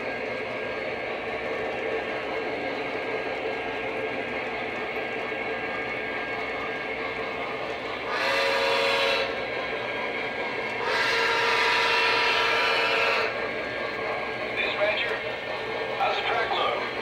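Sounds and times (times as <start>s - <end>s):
model train running on track: 0.0s - 17.0s
electronic train whistle: 8.0s - 9.4s, 10.8s - 13.4s.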